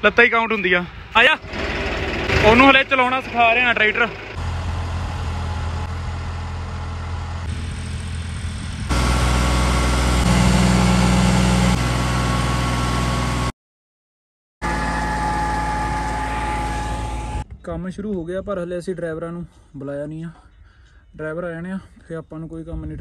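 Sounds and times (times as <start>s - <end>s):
tractor diesel engine under load: 1.0s - 13.5s, 14.6s - 17.4s.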